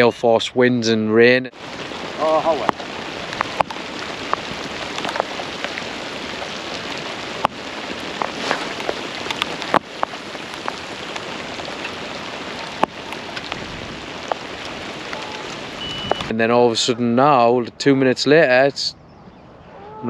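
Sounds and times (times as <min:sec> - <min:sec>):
steady rain falling: 0:01.2 - 0:16.4
heavy raindrops tapping: 0:01.6 - 0:16.3.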